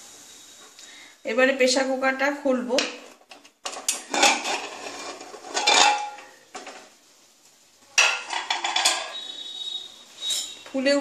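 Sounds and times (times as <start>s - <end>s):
metal lid clanking and scraping: 3.7s - 6.8s, 8.0s - 9.2s.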